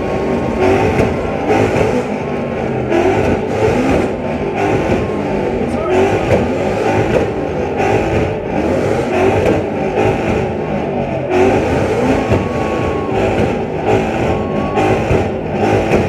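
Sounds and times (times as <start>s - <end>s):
car engines revving hard: 0.0s - 16.0s
rapid throttle blips: 0.0s - 16.0s.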